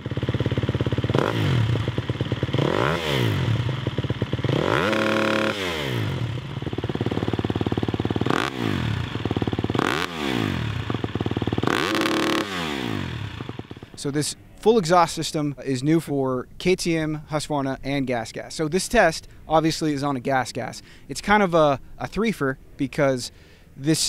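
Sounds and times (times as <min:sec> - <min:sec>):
motocross bike engine revving: 0:00.0 - 0:14.4.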